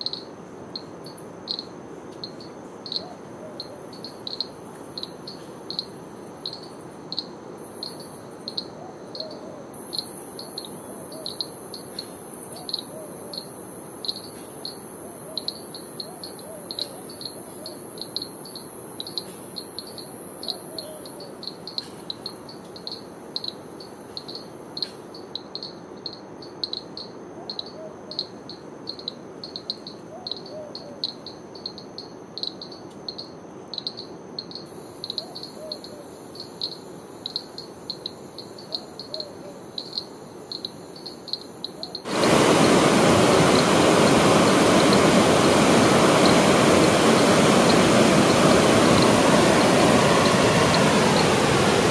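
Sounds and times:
insects chirping: 0:00.0 - 0:51.9
shrill insect buzz: 0:09.8 - 0:25.2.

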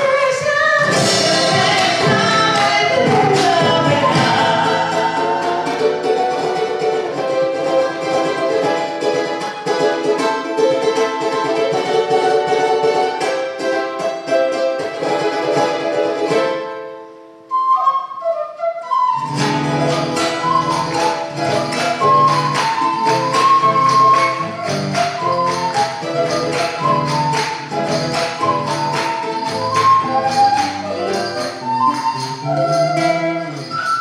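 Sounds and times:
wooden flutes: 0:00.0 - 0:08.4, 0:17.5 - 0:34.0
strummed acoustic strings: 0:00.0 - 0:17.2, 0:19.2 - 0:34.0
deep drum: 0:00.8 - 0:05.0.

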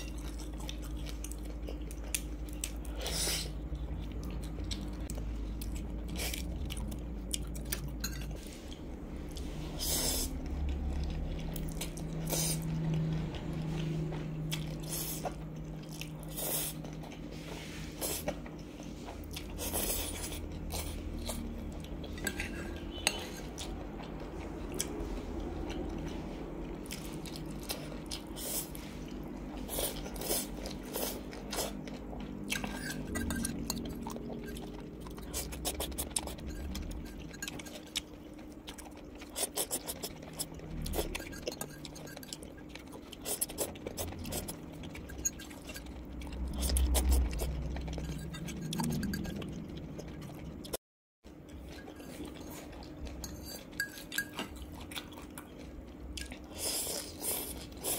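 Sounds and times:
chewing noodles: 0:00.0 - 0:57.9
fork clinking on ceramic bowl: 0:32.6 - 0:34.6, 0:41.1 - 0:42.4, 0:53.2 - 0:54.5.

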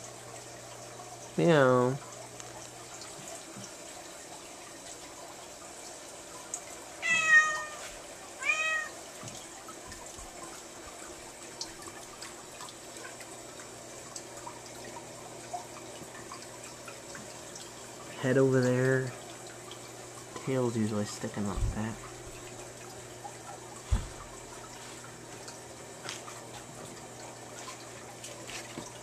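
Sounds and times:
cat meowing: 0:07.0 - 0:07.8, 0:08.4 - 0:09.0.

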